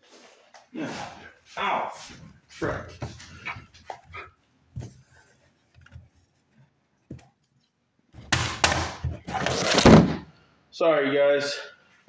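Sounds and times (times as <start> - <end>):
loud rustling scrape: 9.2 - 10.2.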